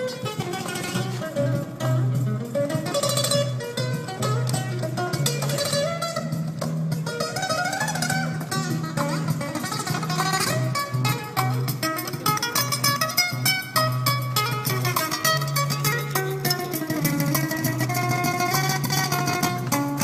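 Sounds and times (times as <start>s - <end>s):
fast plucked guitar music: 0.0s - 20.0s.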